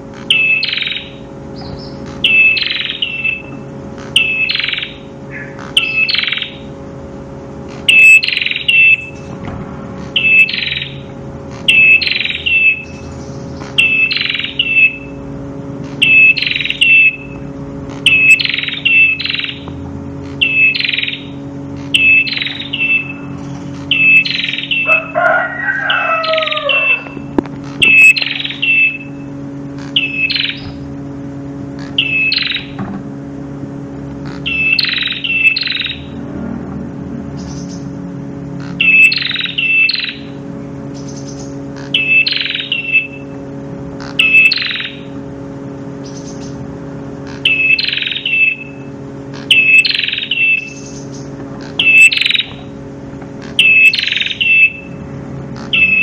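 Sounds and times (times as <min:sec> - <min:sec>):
bird chirping and whistling: 0:00.2 - 0:06.7, 0:07.7 - 0:09.4, 0:10.0 - 0:15.2, 0:15.8 - 0:30.9, 0:31.8 - 0:32.8, 0:34.2 - 0:36.2, 0:37.3 - 0:38.0, 0:38.6 - 0:43.4, 0:44.0 - 0:45.2, 0:46.0 - 0:46.6, 0:47.3 - 0:52.8, 0:53.4 - 0:55.0, 0:55.6 - 0:56.0
rooster crowing: 0:24.7 - 0:27.3.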